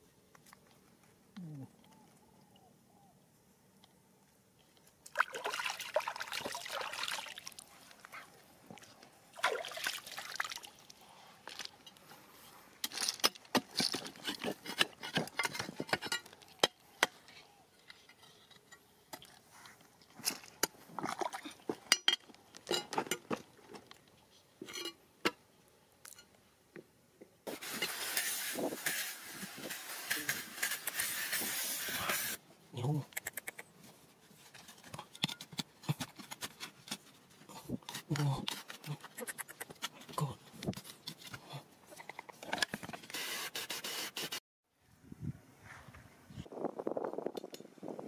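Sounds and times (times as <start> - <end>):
water splashing in a stream: 5.1 - 7.7, 9.3 - 11.0
fine water spray hissing: 27.5 - 32.4.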